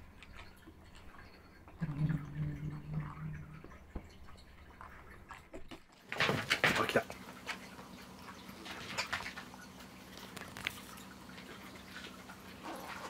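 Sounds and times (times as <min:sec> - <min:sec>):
kitten growling: 0:01.8 - 0:03.7.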